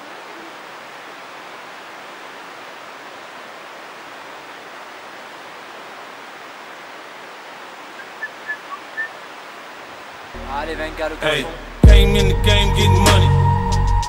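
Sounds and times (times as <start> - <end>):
river rushing: 0.0 - 11.9.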